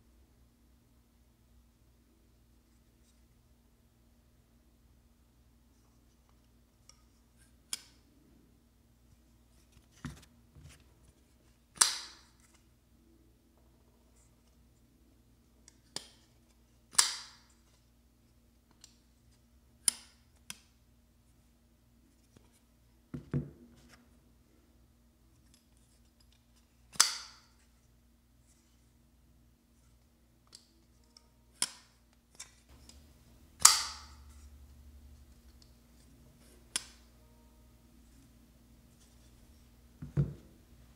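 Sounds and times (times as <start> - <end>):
folding knife clicks and snaps: 11.8 - 12.2, 16.9 - 17.4, 26.9 - 27.4.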